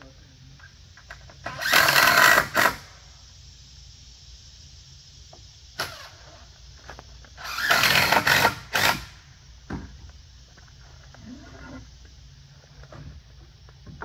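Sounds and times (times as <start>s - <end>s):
power drill driving screw: 1.4s - 2.8s, 7.4s - 9.2s.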